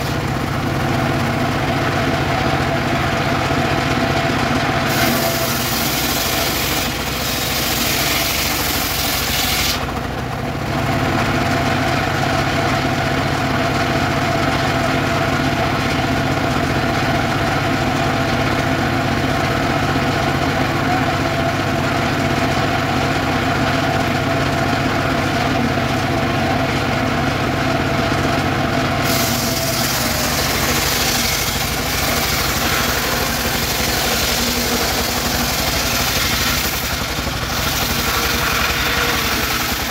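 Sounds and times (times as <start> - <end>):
saw blade spinning: 0.0 - 0.3, 29.0 - 39.9
sawmill engine running: 0.0 - 39.9.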